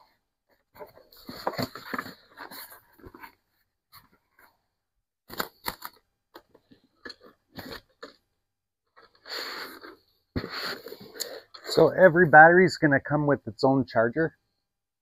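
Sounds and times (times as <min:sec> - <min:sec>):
cardboard packaging rustling: 0:00.8 - 0:04.4, 0:05.3 - 0:08.2.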